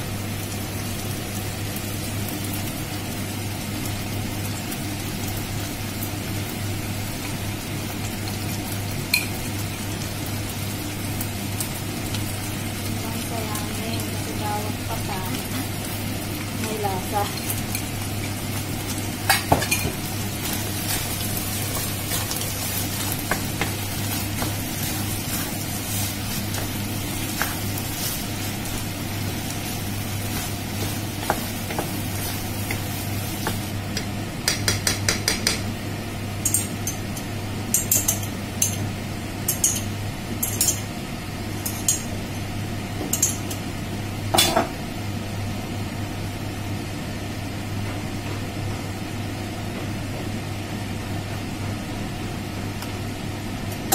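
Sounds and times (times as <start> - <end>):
food sizzling in frying pan: 0.0 - 47.4
low steady hum: 9.1 - 47.0.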